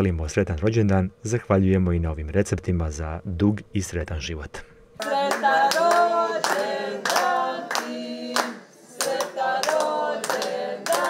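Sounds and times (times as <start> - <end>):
group singing a birthday song: 5.0 - 11.0
hand claps: 5.0 - 11.0.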